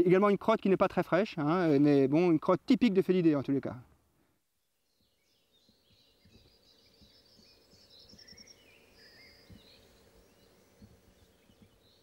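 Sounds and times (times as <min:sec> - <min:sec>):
faint background noise: 0:00.0 - 0:12.0
small birds chirping: 0:04.4 - 0:12.0
bird trill: 0:04.9 - 0:12.0.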